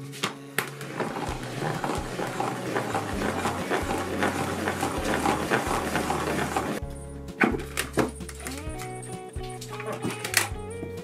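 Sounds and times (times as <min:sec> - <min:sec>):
plastic salad spinner knocks: 0:00.7 - 0:06.8
background music with a beat: 0:01.0 - 0:11.0.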